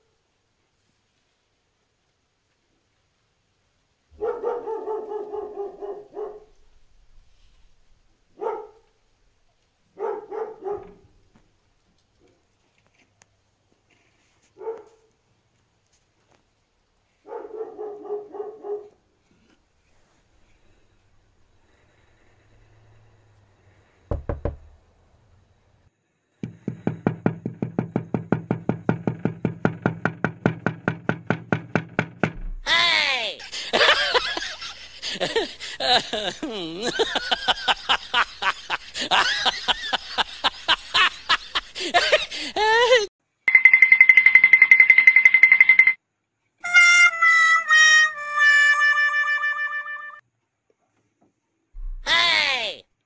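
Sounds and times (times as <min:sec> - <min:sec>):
dog barking: 0:04.1 - 0:06.6, 0:08.3 - 0:08.9, 0:09.9 - 0:11.1, 0:14.6 - 0:15.1, 0:17.2 - 0:19.0
rapid even knocking: 0:24.1 - 0:24.8, 0:26.4 - 0:32.7
sharp knocks: 0:24.1 - 0:24.8, 0:26.4 - 0:32.7, 0:51.8 - 0:52.1.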